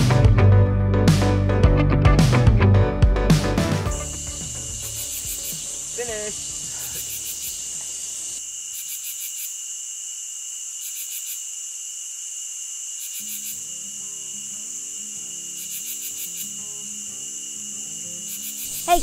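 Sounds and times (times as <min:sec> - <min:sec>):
soft background music: 0:00.0 - 0:07.6, 0:13.3 - 0:19.0
high-pitched insect chorus: 0:03.9 - 0:19.0
pulsed insect trill: 0:03.9 - 0:19.0.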